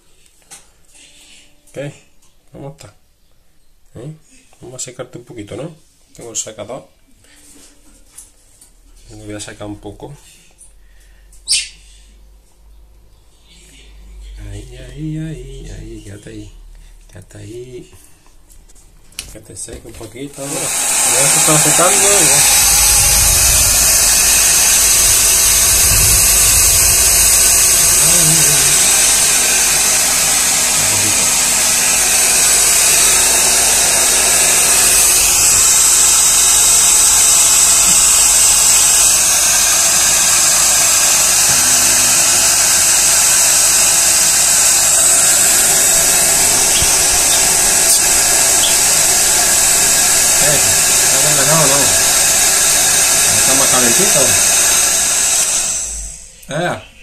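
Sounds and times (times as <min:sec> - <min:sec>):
hair dryer running: 0:20.3 - 0:56.4.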